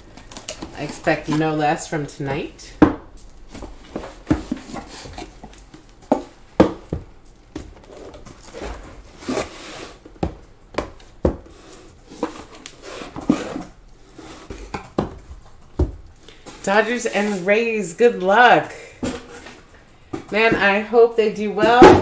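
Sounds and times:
cardboard boxes knocking and rustling: 2.8s - 13.8s, 14.4s - 16.6s, 21.6s - 22.0s
cardboard scraping: 3.5s - 5.5s, 7.8s - 10.1s, 11.5s - 14.8s.

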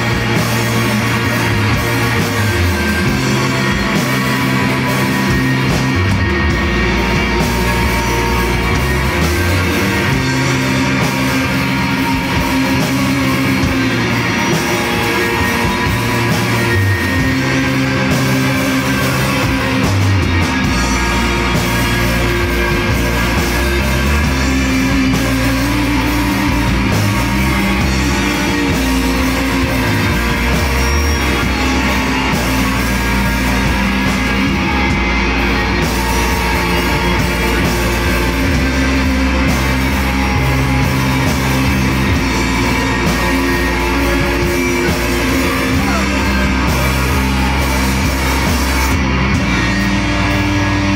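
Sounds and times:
bass line: 0.0s - 50.9s
drums: 0.0s - 50.9s
electric guitars: 0.0s - 50.9s.

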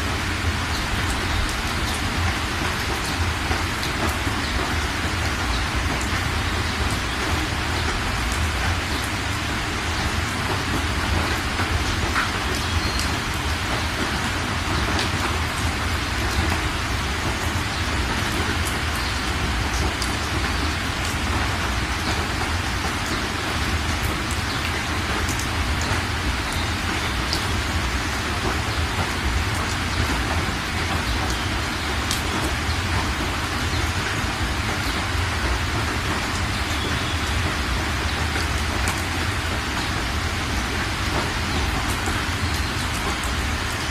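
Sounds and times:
heavy rain pouring: 0.0s - 43.9s.

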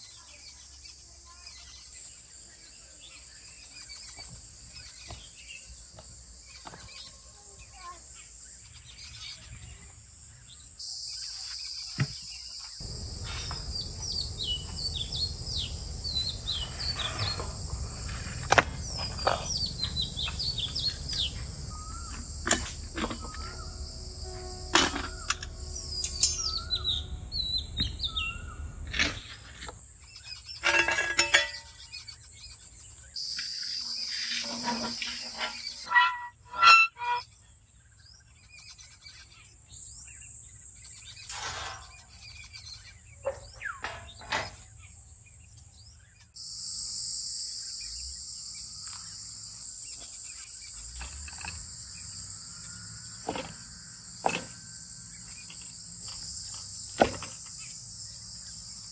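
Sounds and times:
birds chirping: 0.1s - 46.4s
insect drone: 7.6s - 37.4s, 46.4s - 58.9s
metal cookware knocking and clinking: 24.5s - 26.7s, 30.6s - 31.8s.

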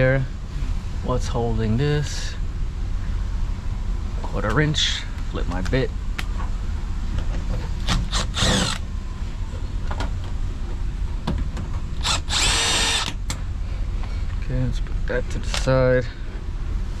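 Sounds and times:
power driver motor whining: 7.8s - 8.9s, 12.0s - 13.3s.

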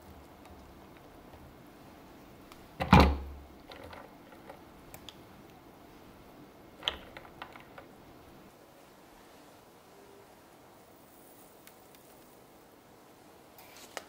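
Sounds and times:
small clicks: 6.8s - 7.9s.

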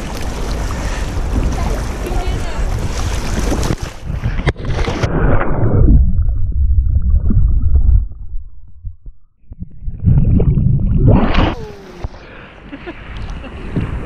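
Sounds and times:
sea water and wind: 0.0s - 8.6s, 9.4s - 14.0s
water splashing: 0.0s - 8.8s
underwater churning rumble and bubbles: 0.0s - 12.4s.

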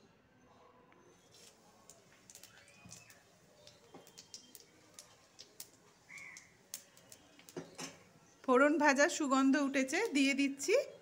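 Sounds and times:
seeds frying in oil: 1.2s - 11.0s
small pops and ticks: 1.4s - 7.9s.

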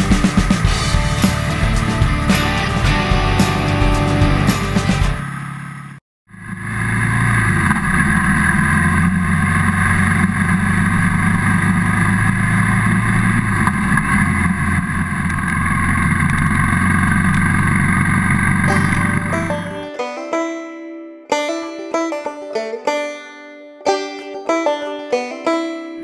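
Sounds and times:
motorcycle engine running: 0.0s - 19.8s
wind and road noise: 0.0s - 19.9s.

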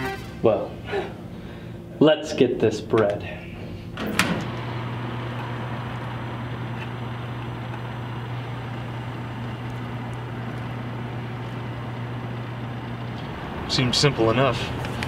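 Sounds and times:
traffic noise: 8.4s - 15.0s.

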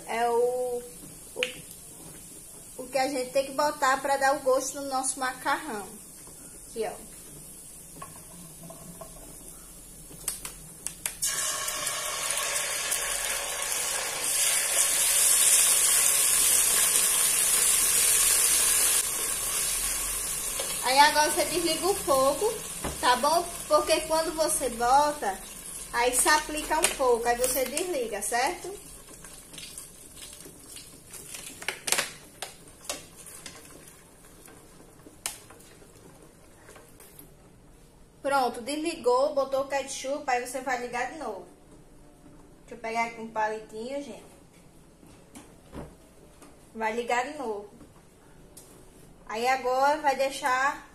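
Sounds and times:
ketchup sizzling in a hot pot: 0.0s - 36.3s.

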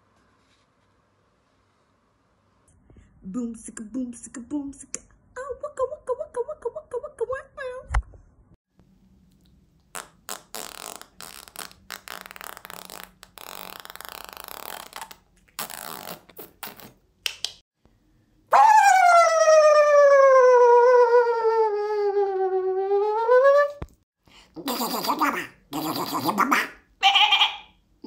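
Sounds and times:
spluttering blown mouth noises: 9.9s - 17.0s, 24.6s - 27.6s
high-pitched vocal squeal: 18.5s - 23.8s, 24.6s - 27.8s.

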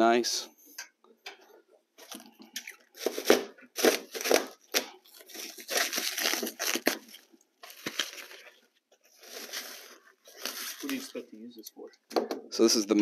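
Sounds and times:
plastic wrap and paper tearing: 2.9s - 11.4s.

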